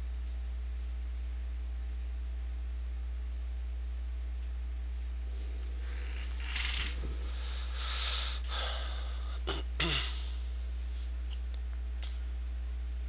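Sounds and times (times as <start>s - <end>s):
low electrical hum: 0.0s - 13.0s
man breathing through nose: 7.1s - 11.1s.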